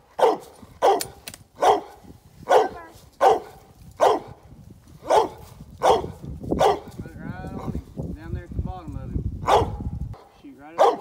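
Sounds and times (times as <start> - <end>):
dog barking: 0.2 - 4.4, 5.0 - 6.9, 9.4 - 11.0.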